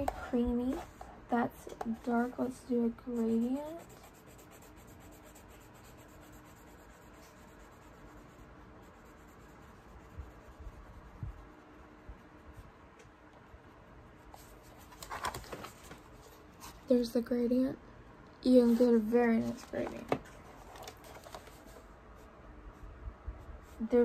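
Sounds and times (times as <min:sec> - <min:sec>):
pencil shading on paper: 0:01.8 - 0:12.5
sketchbook knocks and handling: 0:19.7 - 0:21.6.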